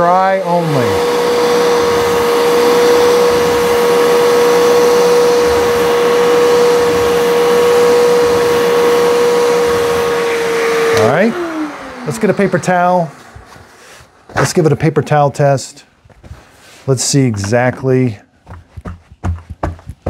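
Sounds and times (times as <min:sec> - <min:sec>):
suction motor whining: 0:00.0 - 0:14.8.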